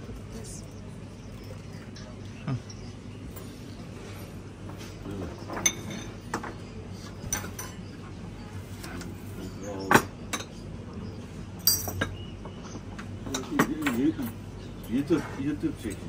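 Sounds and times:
faint voices: 0.0 - 11.4
tableware clinking: 1.4 - 6.6, 7.2 - 7.9, 11.6 - 12.2.

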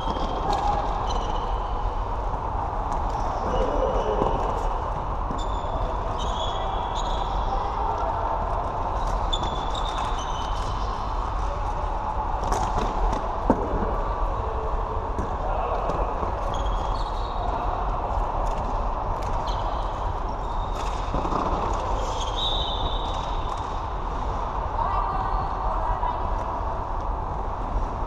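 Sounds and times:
shoes squeaking on court floor: 0.0 - 1.5, 5.3 - 7.5, 9.0 - 11.0, 16.4 - 17.6, 19.2 - 23.6.

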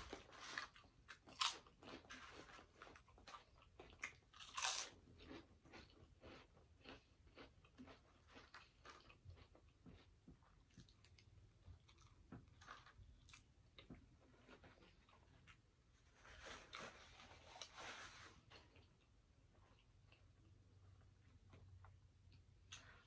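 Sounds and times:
crunchy chewing: 0.0 - 15.6
bite into potato chip: 4.0 - 9.5.

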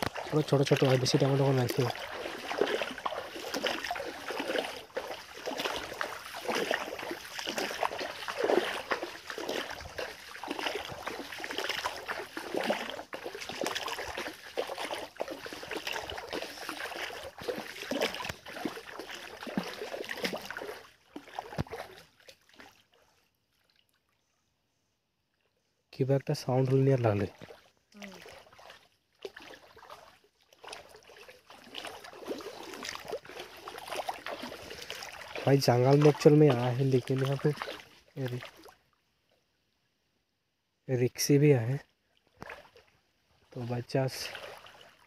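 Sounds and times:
water trickling in a stream: 0.0 - 45.0.

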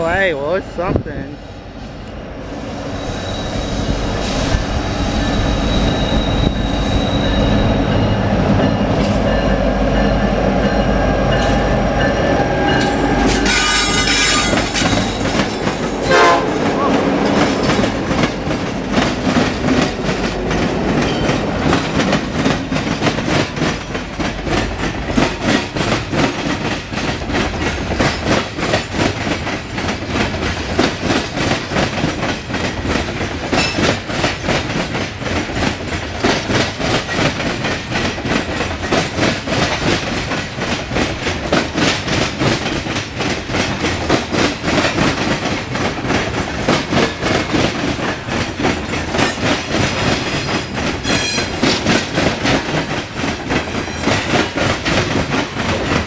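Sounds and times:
diesel locomotive engine rumble: 0.0 - 56.0
train wheels clickety-clack: 3.4 - 56.0
train horn: 12.4 - 14.8, 16.0 - 17.1.

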